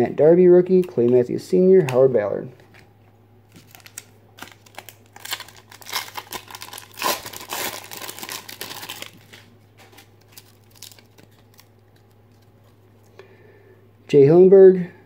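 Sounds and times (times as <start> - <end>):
foil wrapper crinkling: 3.5 - 12.8.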